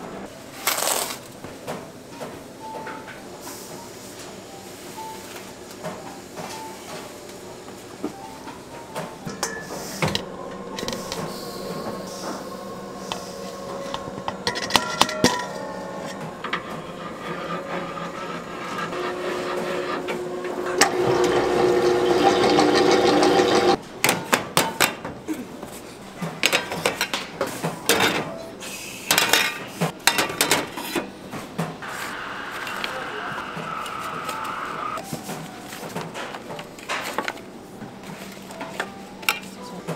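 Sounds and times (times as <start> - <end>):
kitchen machine running: 5.2 - 23.8, 30.0 - 35.0
utensils and pans clattering: 8.9 - 12.3, 13.2 - 25.1, 26.2 - 28.4, 29.1 - 31.7, 35.0 - 37.4.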